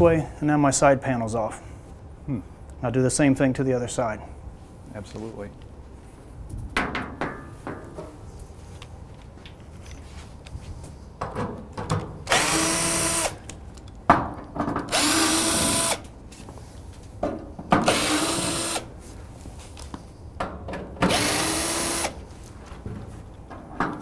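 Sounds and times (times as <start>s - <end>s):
cordless drill motor running: 12.3s - 13.4s, 14.9s - 16.0s, 17.8s - 18.9s, 21.1s - 22.2s.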